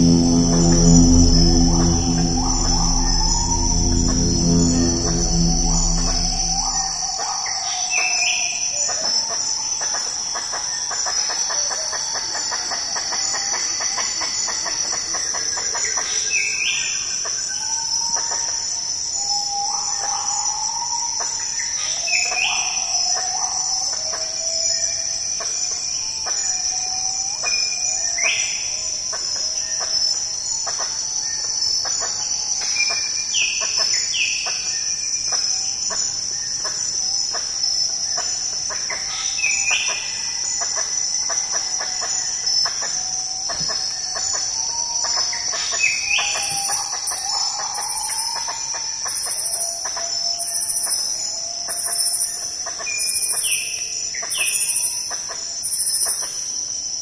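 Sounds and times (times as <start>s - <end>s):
bird calling with sliding notes: 0.0s - 7.1s
high-pitched insect drone: 0.0s - 7.4s.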